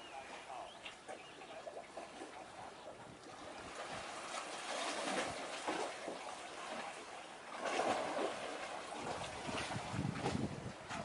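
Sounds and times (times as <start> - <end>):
wind buffeting microphone: 8.8 - 11.0.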